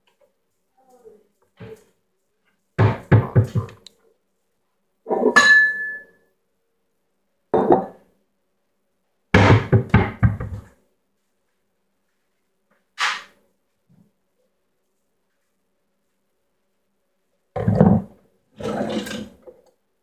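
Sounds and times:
dishes knocking on stone countertop: 0:02.8 - 0:03.8, 0:07.6 - 0:08.0, 0:09.4 - 0:10.6
glassy clink: 0:05.4 - 0:06.3.

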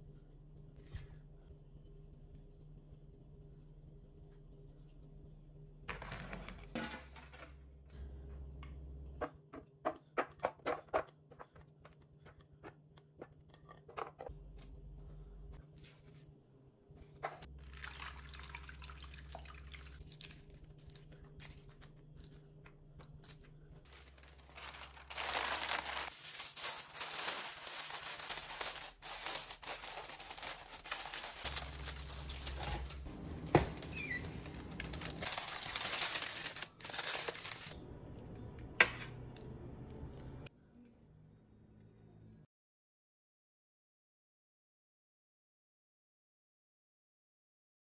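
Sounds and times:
foil and paper crinkling: 0:23.2 - 0:37.8.

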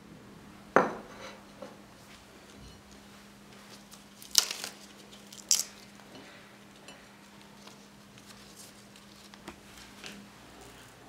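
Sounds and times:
lettuce leaves crinkling: 0:02.9 - 0:11.0.

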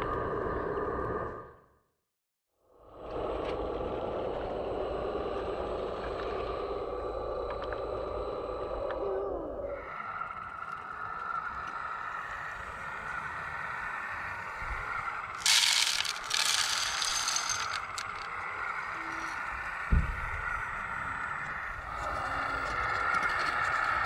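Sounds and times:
gravel scraping and rattling: 0:15.3 - 0:19.4.

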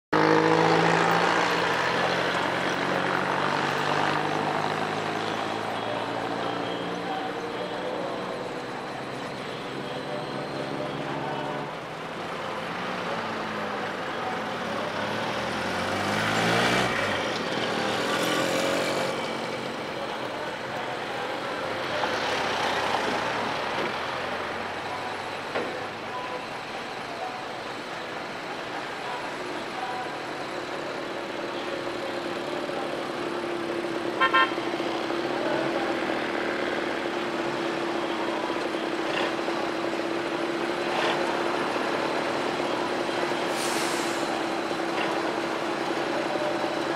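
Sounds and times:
lorries driving past: 0:00.2 - 0:46.9
steady engine hum: 0:00.2 - 0:46.9
horn toot: 0:34.0 - 0:34.8.

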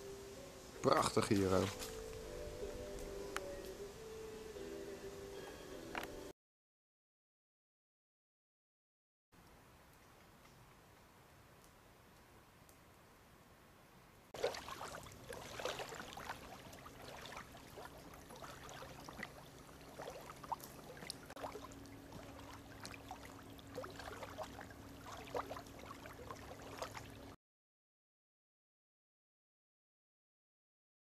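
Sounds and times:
stream gurgling and trickling: 0:00.1 - 0:02.9, 0:14.4 - 0:27.4.

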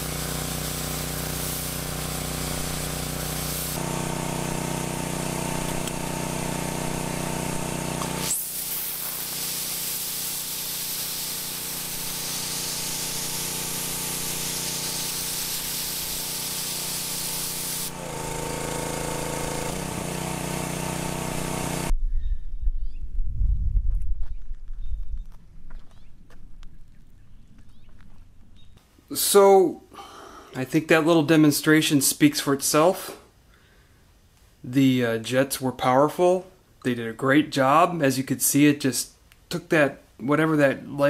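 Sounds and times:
pressure washer hum: 0:00.0 - 0:21.9
water jets spraying on concrete: 0:00.0 - 0:21.9.

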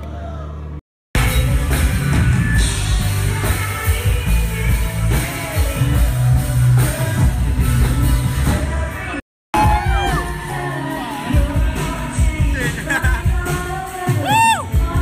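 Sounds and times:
backing track with heavy bass beat: 0:01.2 - 0:15.0
person rapping: 0:11.2 - 0:14.2.

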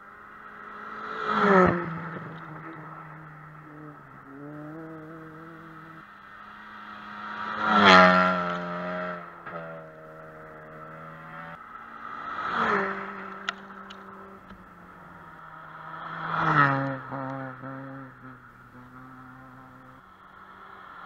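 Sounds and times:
rally car engines revving past: 0:00.0 - 0:21.0.

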